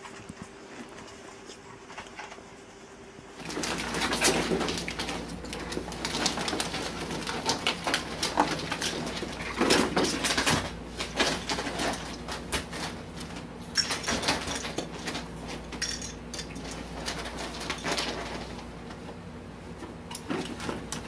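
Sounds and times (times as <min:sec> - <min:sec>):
plastic balls clattering: 0:03.4 - 0:18.7.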